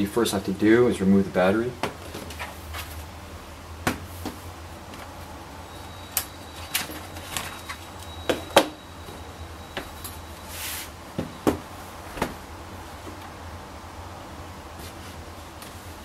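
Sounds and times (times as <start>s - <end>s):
short scrape: 10.5s - 11.0s.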